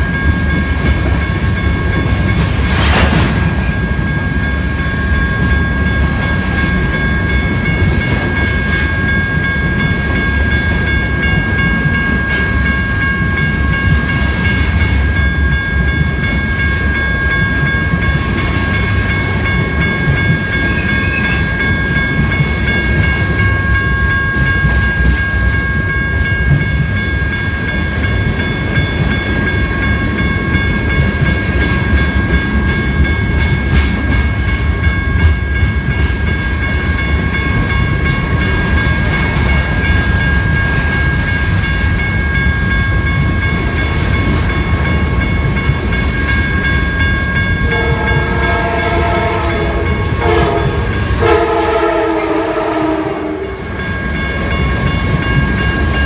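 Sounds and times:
steady high-pitched tone: 0.0 - 52.0
train wheels rumbling on rails: 0.0 - 56.0.

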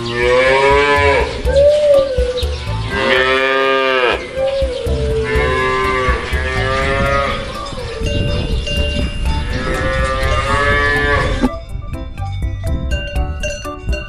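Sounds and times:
cow mooing: 0.0 - 1.3, 2.9 - 4.4, 5.2 - 8.1, 9.4 - 11.5.

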